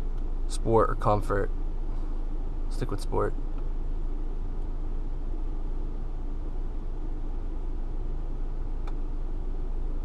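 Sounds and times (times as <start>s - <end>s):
air conditioning blowing: 0.0s - 10.0s
car engine idling: 0.0s - 10.0s
faint click: 8.8s - 9.0s.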